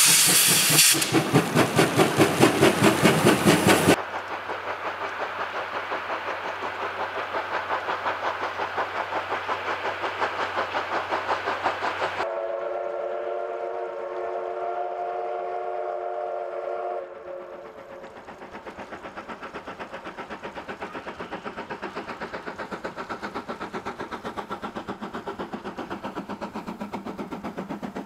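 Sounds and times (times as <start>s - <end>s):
steam locomotive chuffing: 0.0s - 28.0s
steam whistle blast: 12.3s - 17.5s.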